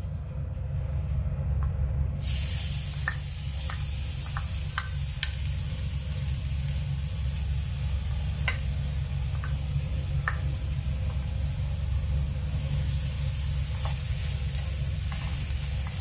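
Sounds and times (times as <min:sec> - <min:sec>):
steady low hum: 0:00.0 - 0:16.0
garlic sizzling in a pan: 0:02.2 - 0:16.0
hot fat popping: 0:02.4 - 0:16.0
spatula stirring: 0:13.6 - 0:16.0.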